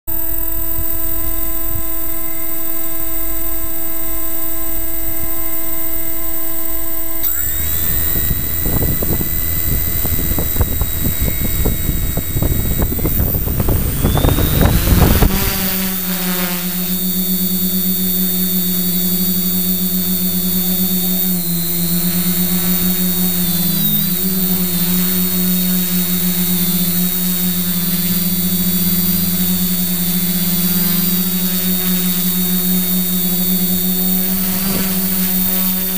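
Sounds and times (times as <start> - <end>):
drone motors whining: 0.1 - 35.9
gimbal humming: 0.1 - 35.9
rush of air from propellers: 7.4 - 16.0.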